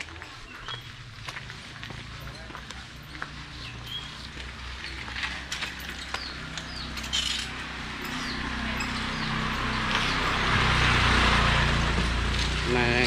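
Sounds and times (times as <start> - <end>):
small birds chirping: 0.0 - 1.3, 2.0 - 10.5
motorbike engine hum: 0.0 - 13.0.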